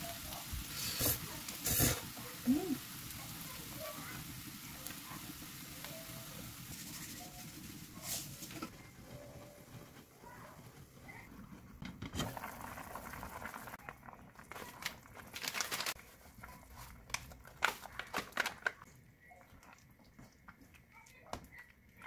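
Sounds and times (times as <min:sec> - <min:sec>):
pot bubbling: 0:00.0 - 0:22.0
powder packet crinkling: 0:14.4 - 0:18.9.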